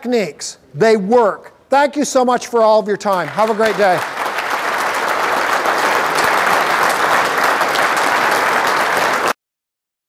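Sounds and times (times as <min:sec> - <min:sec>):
audience applauding: 0:03.0 - 0:09.4.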